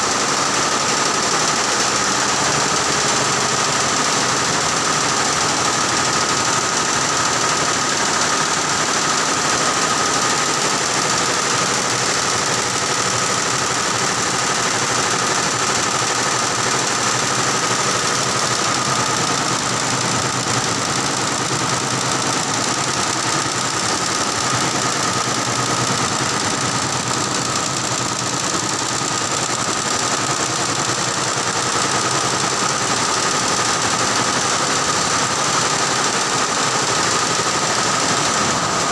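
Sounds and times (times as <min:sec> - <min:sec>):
embroidery machine stitching: 0:00.0 - 0:38.9.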